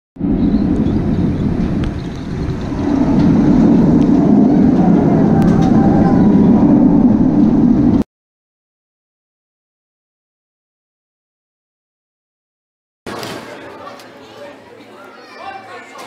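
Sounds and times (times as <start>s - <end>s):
roller coaster train on track: 0.2s - 8.0s.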